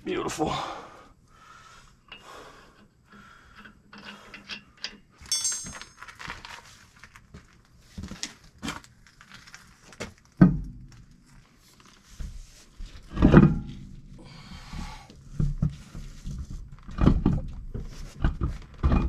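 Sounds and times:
metal tools clinking and scraping: 3.6s - 6.5s
ringing metallic clink: 5.2s - 6.0s.

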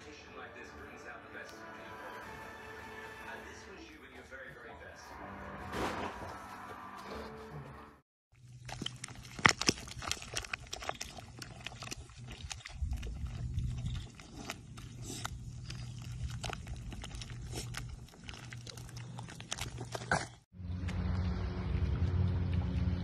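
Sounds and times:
low hum: 8.4s - 23.0s
mud squelching and slapping: 8.4s - 23.0s.

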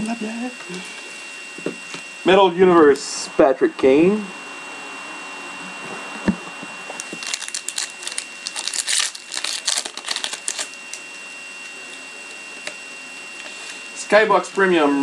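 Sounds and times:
foil wrapper crinkling: 7.0s - 12.7s.

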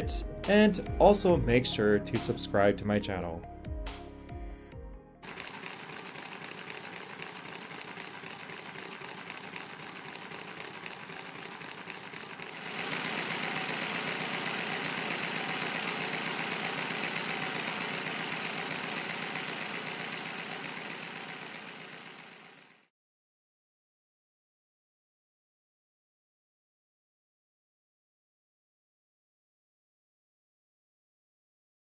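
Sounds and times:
model engine mechanical clatter: 5.2s - 22.8s.

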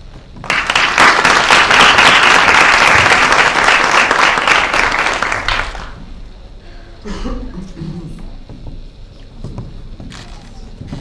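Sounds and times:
crowd applauding: 0.4s - 6.0s.

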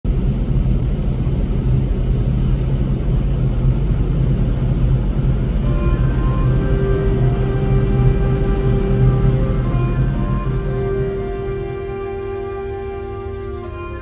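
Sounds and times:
ship engine rumbling: 0.1s - 14.0s
music notes: 5.5s - 14.0s.

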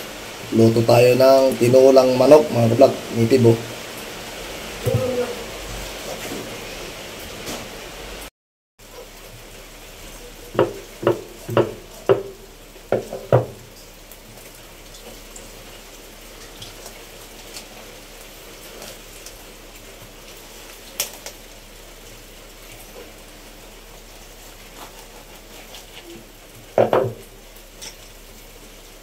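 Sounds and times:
faint steady hiss: 0.0s - 29.0s
cleaver chopping on wooden board: 10.6s - 13.6s.

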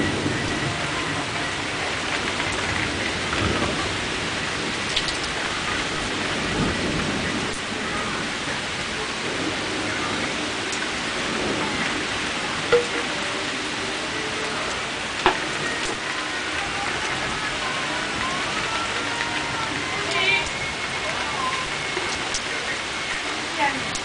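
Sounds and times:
thunder rumbling: 0.0s - 16.0s
rain falling: 0.0s - 24.0s.

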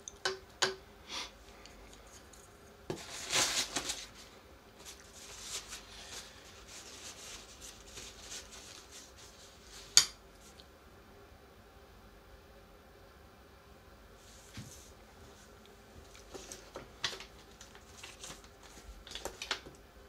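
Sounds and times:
paper crinkle: 2.9s - 9.9s, 16.1s - 19.6s.

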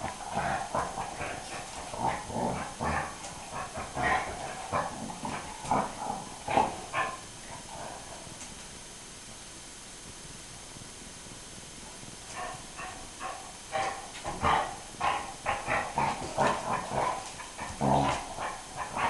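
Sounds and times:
dog growling and whining: 0.0s - 8.3s, 12.3s - 19.0s.

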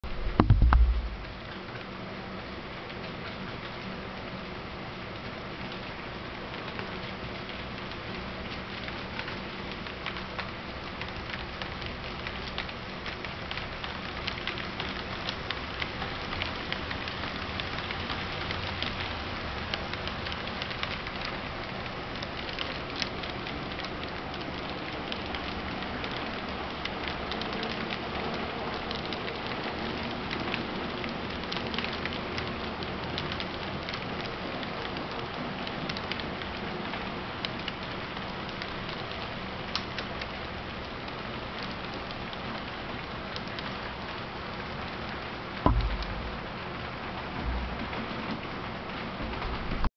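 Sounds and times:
low thump: 0.0s - 1.4s, 45.7s - 46.5s.

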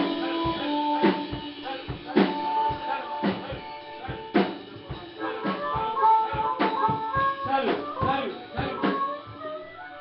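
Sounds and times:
drum kit hits: 0.0s - 9.4s
blues-rock band playing: 0.0s - 10.0s
held guitar notes: 0.0s - 10.0s.

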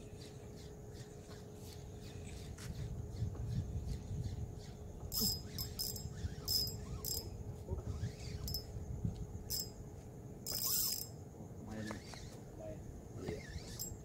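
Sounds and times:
fishing reel drag buzzing: 5.1s - 7.3s, 8.0s - 8.7s, 9.5s - 9.7s, 10.5s - 11.2s, 13.4s - 14.0s.

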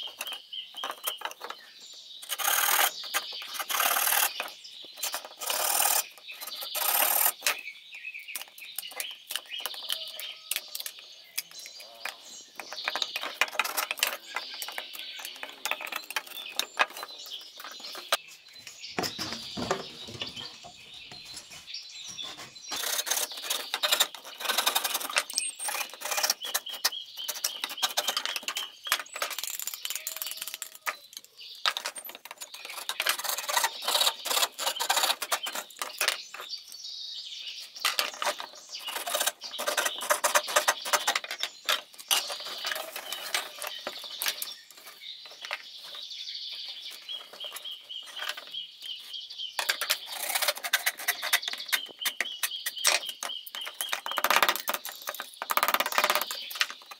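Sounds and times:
birds chirping: 0.0s - 56.9s
rapid irregular clicking and tapping: 37.8s - 45.7s, 49.6s - 56.9s.

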